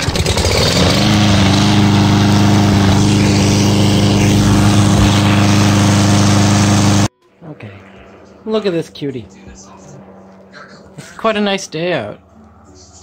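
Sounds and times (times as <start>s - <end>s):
lawn mower engine: 0.0s - 7.1s.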